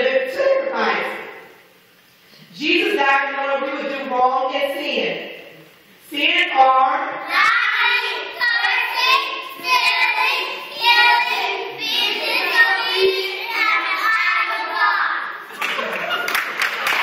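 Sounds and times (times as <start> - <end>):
children singing: 7.4 - 14.8.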